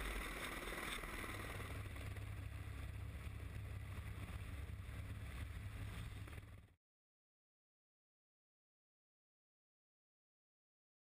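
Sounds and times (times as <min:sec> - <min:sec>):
ship low rumble: 0:00.0 - 0:06.8.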